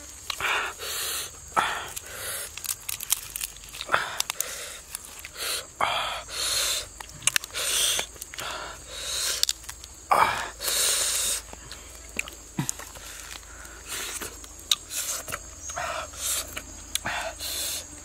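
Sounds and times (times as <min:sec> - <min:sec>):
roasted duck skin ripping and crackling: 0:01.9 - 0:05.4, 0:07.0 - 0:08.4, 0:09.3 - 0:10.0.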